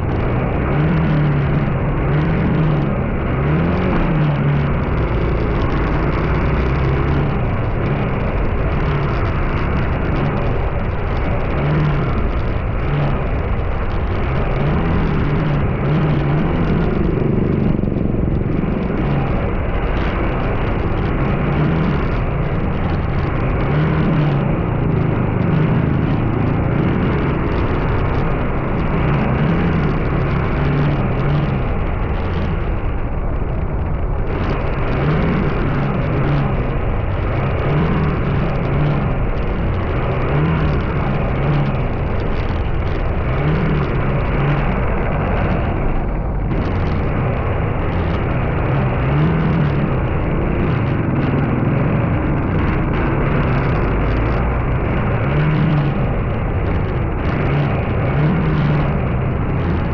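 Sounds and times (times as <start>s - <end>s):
road noise while driving: 0.0s - 59.9s
vehicle engine revving: 0.0s - 59.9s.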